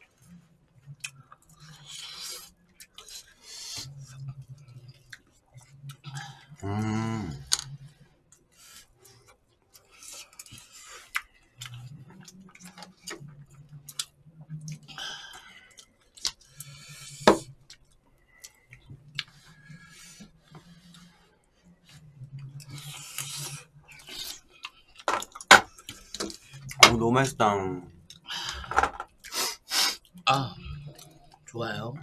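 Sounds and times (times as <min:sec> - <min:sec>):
chewing and mouth sounds: 0:00.0 - 0:21.2, 0:21.8 - 0:26.8, 0:27.9 - 0:31.6.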